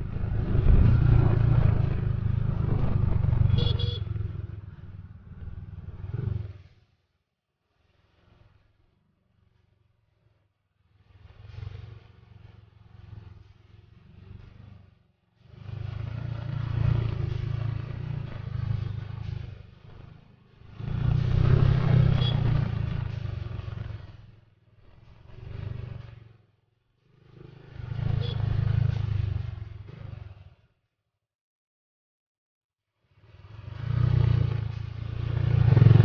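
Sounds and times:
rumble and clatter from bumpy surface: 0:00.0 - 0:03.5, 0:11.0 - 0:26.4
motorcycle engine running: 0:00.0 - 0:06.6, 0:11.1 - 0:24.4, 0:27.1 - 0:30.6, 0:33.6 - 0:36.0.

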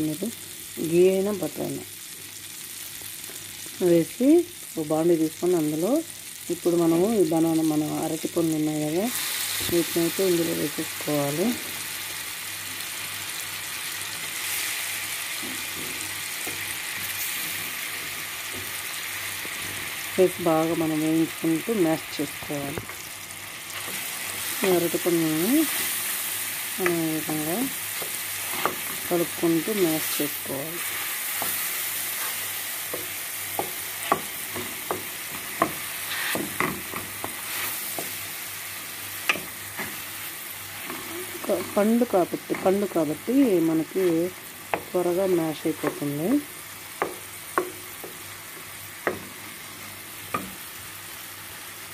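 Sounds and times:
banana slices sizzling in butter: 0:00.0 - 0:51.9
wooden spatula scraping a pan: 0:30.8 - 0:38.2.

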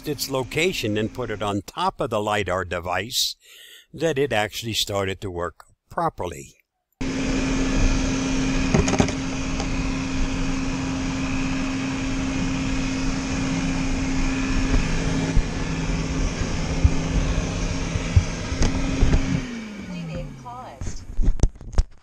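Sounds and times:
robot vacuum motor hum: 0:00.0 - 0:01.6, 0:07.0 - 0:21.2
lower hum: 0:07.0 - 0:21.2.

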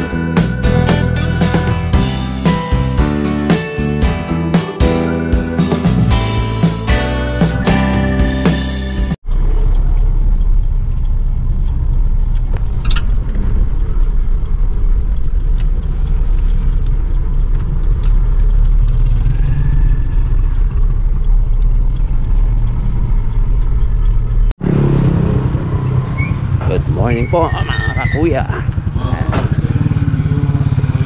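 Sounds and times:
car engine and road rumble: 0:00.0 - 0:31.0.

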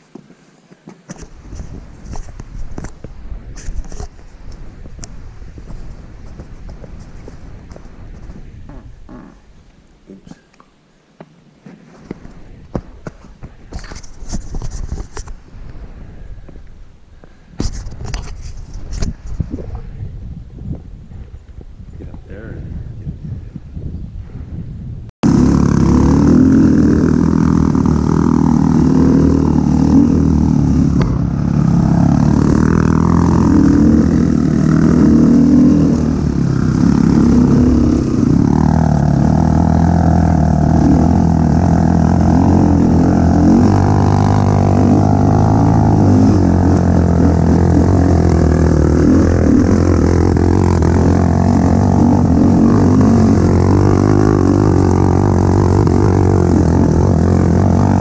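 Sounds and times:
dirt bike engine revving: 0:25.2 - 0:58.0.

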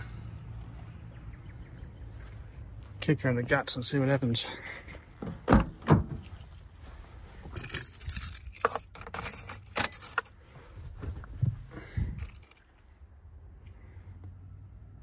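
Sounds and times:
car door clunks: 0:05.2 - 0:06.2
clicks and rustles: 0:05.2 - 0:12.8
keys jangling: 0:07.5 - 0:10.4, 0:12.1 - 0:12.7.

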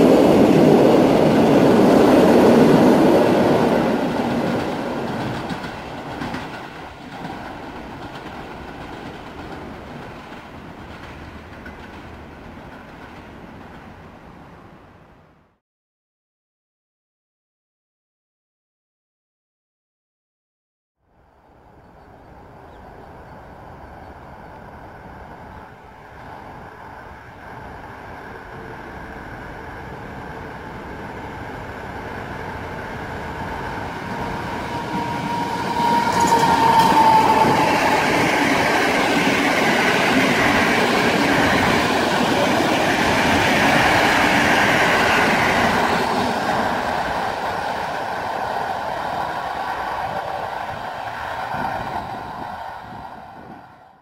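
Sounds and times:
train wheels rumbling on rails: 0:00.0 - 0:15.1, 0:23.7 - 0:54.0
locomotive whine: 0:22.3 - 0:54.0.

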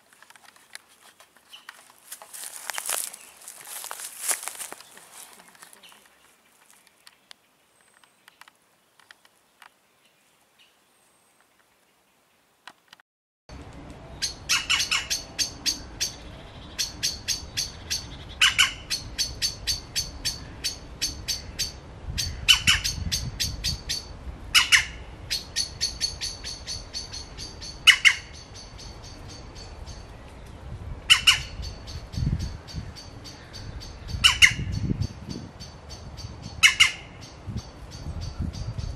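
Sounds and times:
bird chipping: 0:14.2 - 0:30.2, 0:31.1 - 0:38.9.

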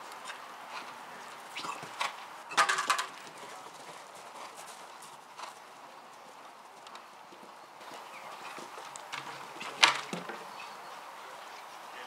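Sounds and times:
horse hoofbeats cantering on grass: 0:02.7 - 0:10.6.

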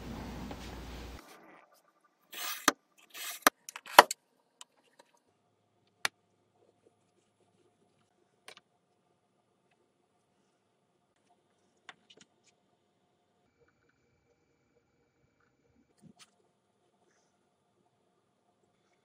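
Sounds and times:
knife scraping wood along ruler: 0:02.3 - 0:03.5.

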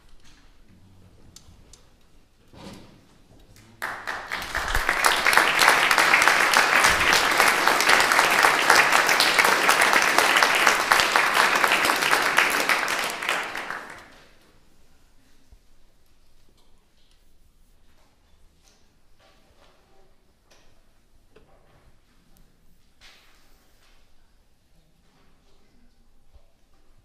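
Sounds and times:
audience applauding: 0:03.8 - 0:14.2.

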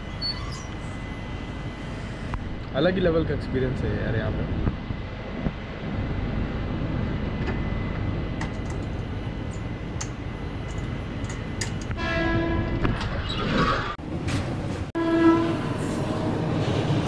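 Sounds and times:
train background noise: 0:00.0 - 0:17.0
locomotive horn: 0:11.9 - 0:12.9, 0:15.0 - 0:16.2.

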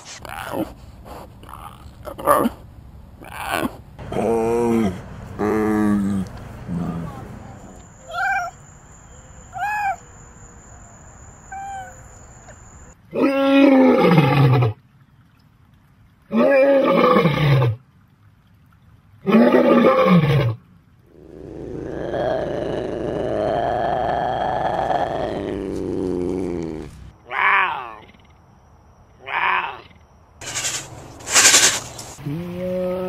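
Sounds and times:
lion roaring: 0:03.2 - 0:07.8, 0:21.1 - 0:27.5
ocelot calling: 0:03.2 - 0:13.0
small cat mewing: 0:08.0 - 0:08.6, 0:09.6 - 0:10.0, 0:29.2 - 0:29.9.

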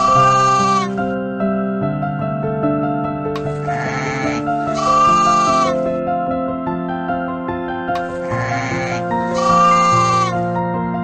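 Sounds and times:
sheep bleating: 0:00.0 - 0:01.0, 0:03.6 - 0:05.9, 0:08.1 - 0:10.5
background music: 0:00.0 - 0:11.0.

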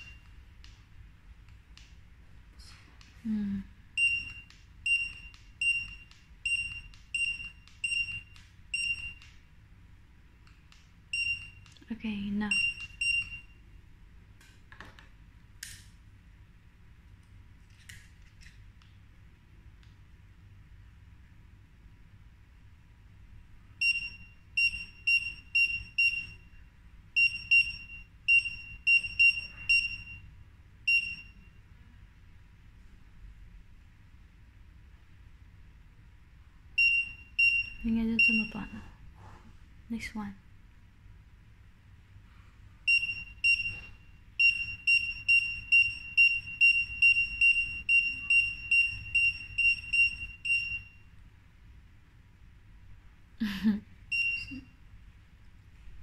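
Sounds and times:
barcode scanner beeping: 0:00.0 - 0:00.3, 0:04.0 - 0:09.4, 0:11.2 - 0:11.7, 0:12.5 - 0:13.6, 0:23.8 - 0:26.5, 0:27.2 - 0:30.2, 0:30.9 - 0:31.4, 0:36.8 - 0:38.8, 0:42.9 - 0:50.9, 0:54.1 - 0:54.6.

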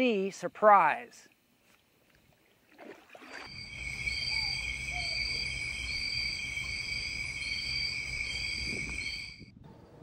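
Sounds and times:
insects singing: 0:03.5 - 0:09.4.

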